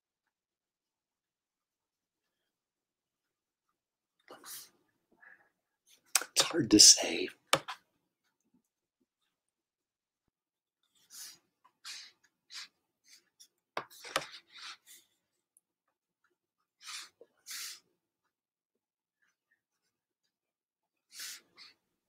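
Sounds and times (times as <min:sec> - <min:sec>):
pen scratching on paper: 0:10.9 - 0:15.1, 0:16.8 - 0:17.8.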